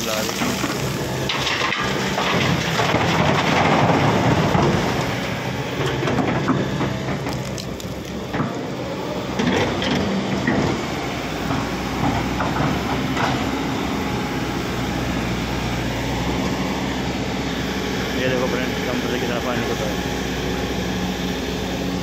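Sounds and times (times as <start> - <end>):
rocks rattling into steel truck bed: 0.0 - 5.0
excavator diesel engine running: 0.0 - 22.0.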